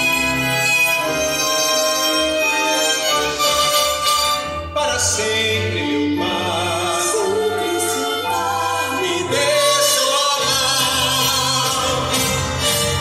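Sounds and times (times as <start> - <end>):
instrumental accompaniment: 0.0 - 13.0
person singing with vibrato: 4.3 - 13.0.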